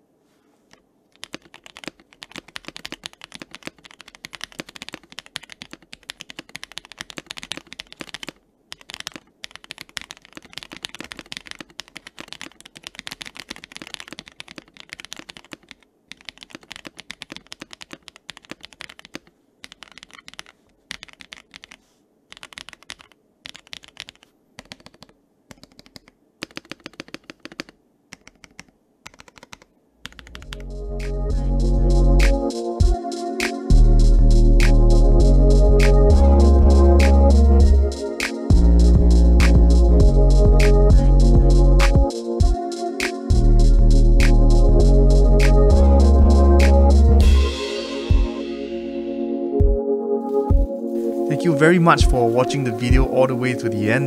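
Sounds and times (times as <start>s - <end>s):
mechanical keyboard key clacks: 1.2s - 30.4s.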